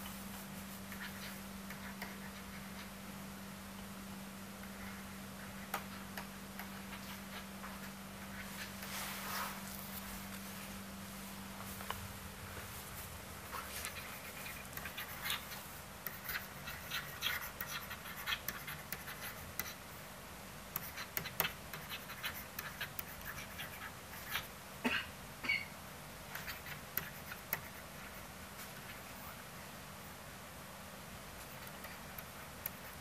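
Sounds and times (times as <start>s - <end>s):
stylus tapping and scratching on screen: 0.0s - 3.0s, 4.6s - 10.5s, 13.4s - 20.0s, 20.7s - 24.6s, 26.2s - 29.4s, 31.4s - 33.0s.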